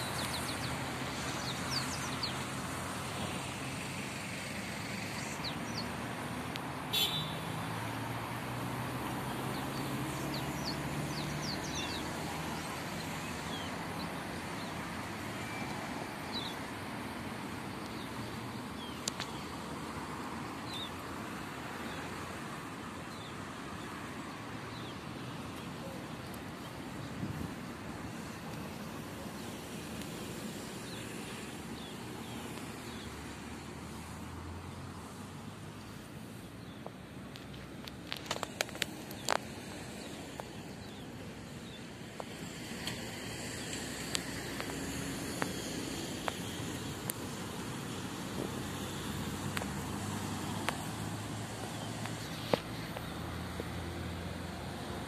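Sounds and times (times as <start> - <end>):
small birds chirping: 0.0 - 3.6, 9.0 - 33.3, 35.8 - 47.4
outdoor background hiss: 0.0 - 55.0
road traffic hum: 0.0 - 55.0.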